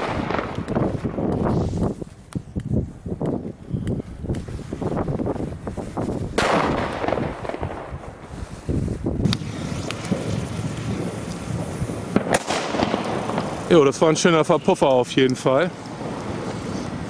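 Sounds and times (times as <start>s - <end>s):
firecracker bang: 0.0s - 2.0s, 6.3s - 8.4s, 9.0s - 14.4s
low rumbling noise: 0.0s - 17.0s.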